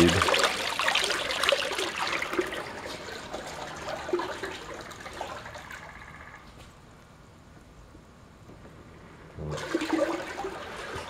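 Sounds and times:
water churning in metal can: 0:00.0 - 0:06.3.

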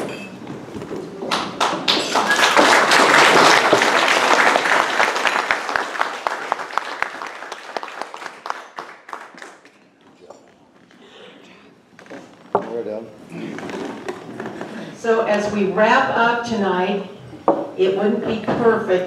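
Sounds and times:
audience applauding: 0:01.3 - 0:09.8.

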